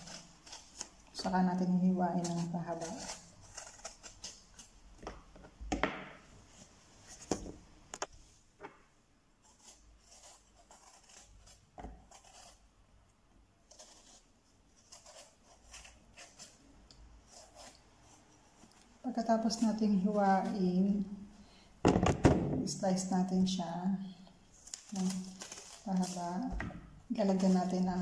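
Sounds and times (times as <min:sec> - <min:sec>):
knife scraping vegetable skin: 0:00.0 - 0:05.0, 0:09.4 - 0:12.7, 0:13.6 - 0:20.6, 0:24.5 - 0:28.0.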